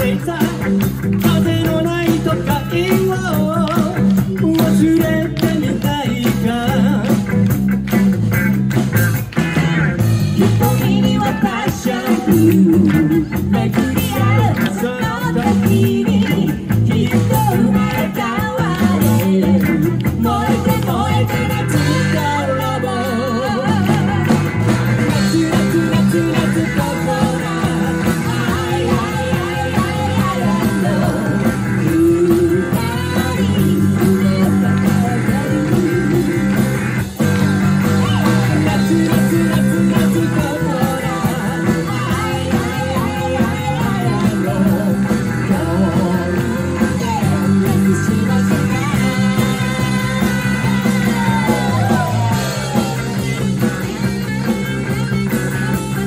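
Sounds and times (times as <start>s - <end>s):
two singers singing a duet: 0.0s - 7.2s, 10.4s - 36.8s, 37.9s - 53.1s
live rock band playing: 0.0s - 56.0s.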